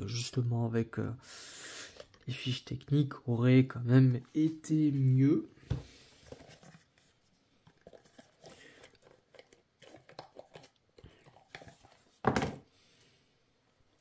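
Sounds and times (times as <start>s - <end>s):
cards and paper rustling: 5.8s - 12.6s.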